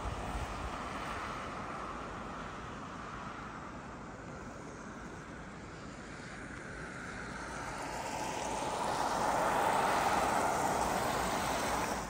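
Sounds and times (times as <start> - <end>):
vehicle driving past: 7.3 - 12.0.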